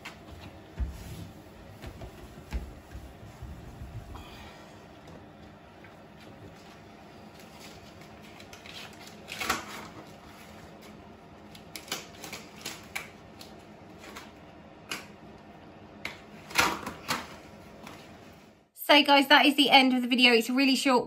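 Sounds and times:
cloth rubbing on bath: 0.0s - 4.2s.

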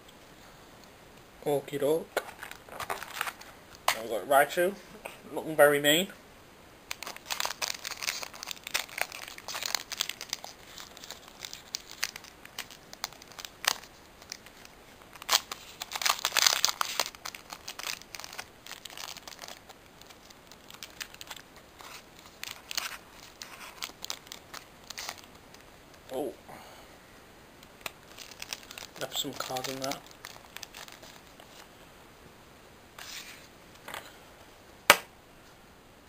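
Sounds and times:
foil pack crinkling and tearing: 2.2s - 3.5s, 6.9s - 26.0s, 27.7s - 31.7s.

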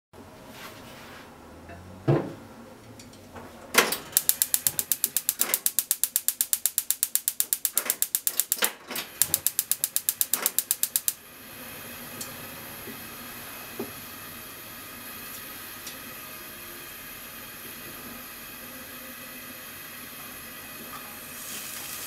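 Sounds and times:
gas stove igniter clicking: 4.2s - 11.2s
gas flame hissing: 4.2s - 22.0s.

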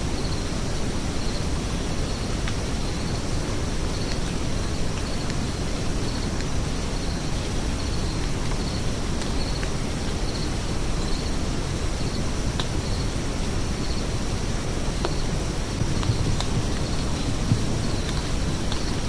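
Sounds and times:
low rumbling outdoor noise: 0.0s - 19.0s
cricket chirping: 2.8s - 3.3s, 7.0s - 11.4s, 12.8s - 19.0s.

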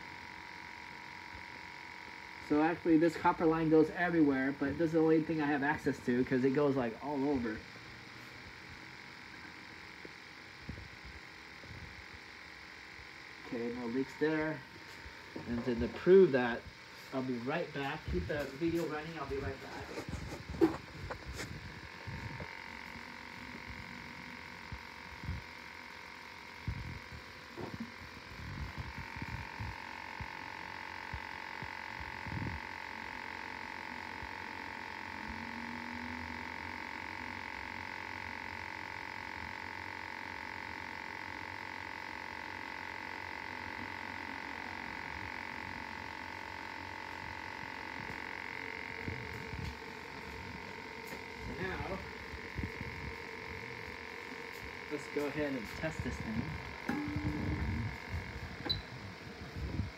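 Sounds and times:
leak detector high-pitched tone: 12.6s - 59.9s.

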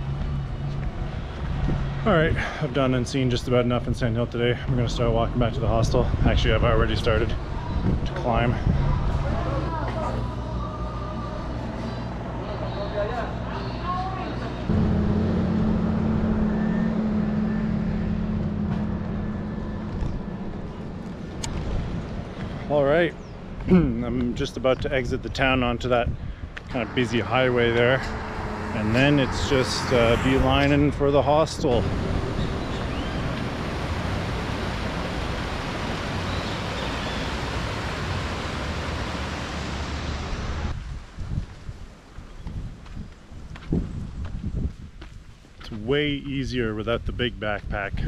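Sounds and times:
vehicle engine droning: 0.0s - 22.8s, 25.6s - 40.8s
stream rushing over rocks: 31.8s - 40.7s.

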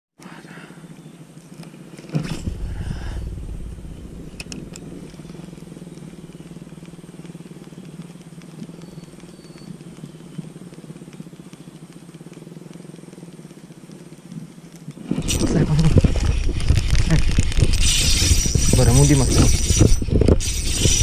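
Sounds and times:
small engine droning: 2.1s - 14.2s
sharp clicks: 2.3s - 17.8s.

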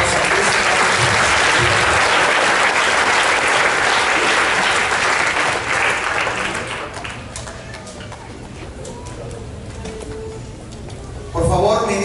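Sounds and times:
congregation clapping: 0.0s - 8.4s.

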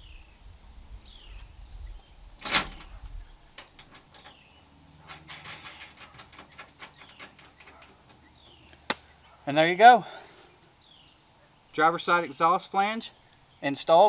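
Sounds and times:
bird chirping: 0.0s - 12.4s.

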